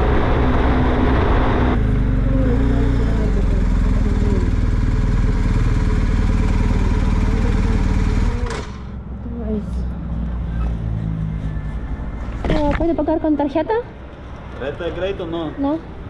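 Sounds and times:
motorcycle engine running: 0.0s - 12.7s.

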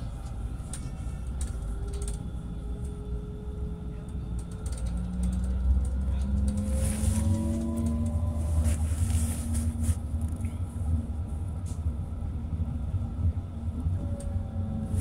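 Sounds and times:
rail clicks: 0.0s - 3.0s, 3.9s - 8.9s
tram rumbling on rails: 0.0s - 15.0s.

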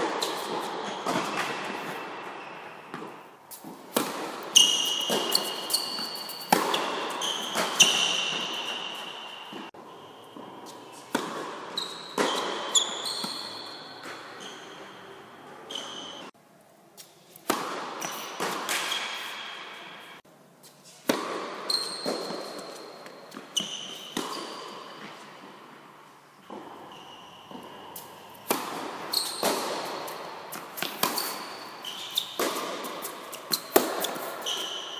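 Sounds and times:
balls bouncing on hard court: 0.0s - 14.9s, 26.5s - 34.9s
tennis rackets hitting balls: 0.0s - 16.3s, 17.0s - 20.2s, 21.0s - 25.7s, 26.4s - 34.9s.

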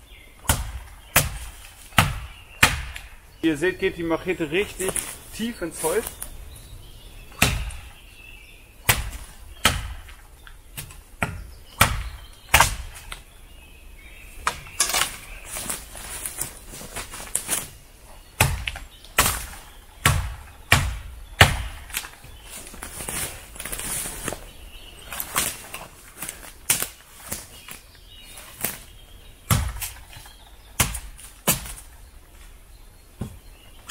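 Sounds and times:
machete chopping wood: 0.4s - 3.1s, 7.4s - 7.9s, 8.8s - 10.2s, 10.8s - 13.2s, 18.4s - 22.2s, 26.6s - 27.0s, 29.5s - 30.1s, 30.8s - 31.9s.

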